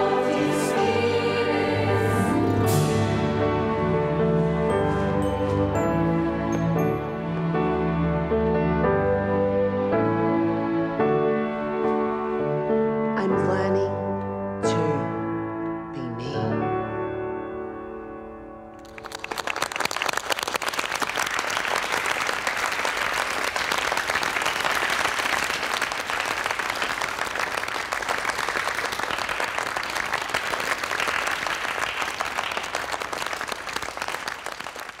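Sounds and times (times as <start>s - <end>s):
piano note: 1.8s - 7.8s
audience applauding: 18.8s - 35.0s.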